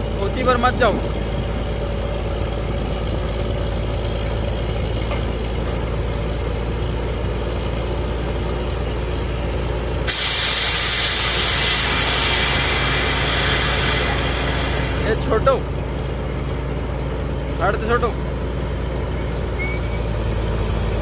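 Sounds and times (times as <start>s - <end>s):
drilling rig and compressor running: 0.0s - 21.0s
rush of compressed air: 10.1s - 15.3s.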